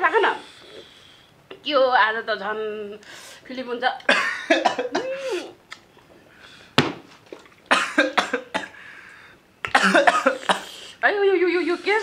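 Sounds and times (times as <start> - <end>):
person coughing: 4.1 - 5.6, 7.7 - 8.8, 9.7 - 10.8
sharp knock: 6.8 - 7.1.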